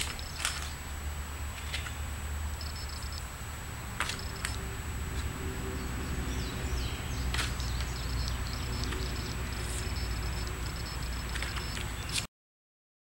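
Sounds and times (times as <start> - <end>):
small birds chirping: 0.0 - 0.8, 1.6 - 3.3, 4.0 - 4.6, 5.2 - 12.3
steady low hum: 0.0 - 12.3.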